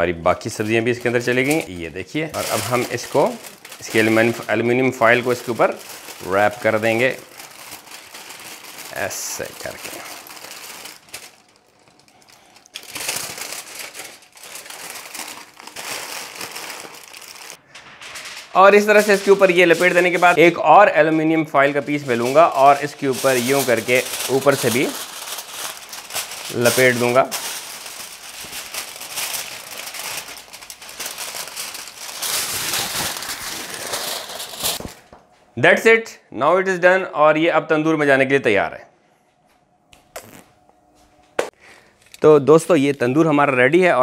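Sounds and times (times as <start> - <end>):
foil and paper crinkling: 0.4 - 35.2.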